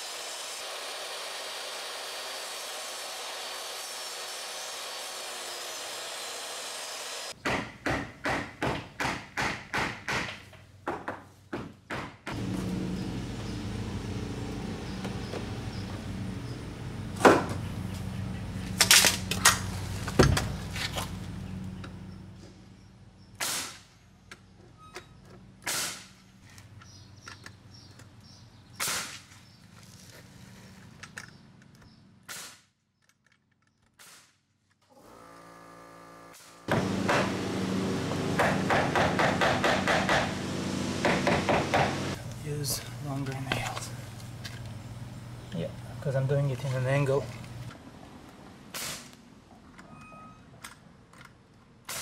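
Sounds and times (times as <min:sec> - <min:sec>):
nail gun shots: 0:23.4 - 0:23.9, 0:25.6 - 0:26.1, 0:28.8 - 0:29.2, 0:32.3 - 0:32.7, 0:34.0 - 0:34.4, 0:38.4 - 0:40.3, 0:48.8 - 0:49.1
steady low hum: 0:36.7 - 0:47.7.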